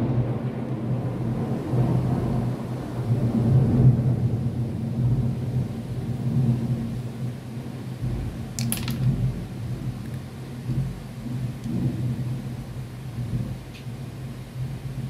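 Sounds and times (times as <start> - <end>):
plastic bricks clicking: 8.6 - 9.2.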